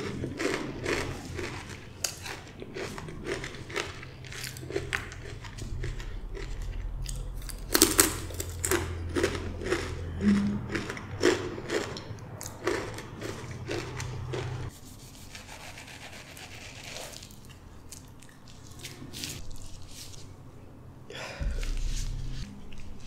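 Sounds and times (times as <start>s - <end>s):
chips being chewed: 0.0s - 14.7s.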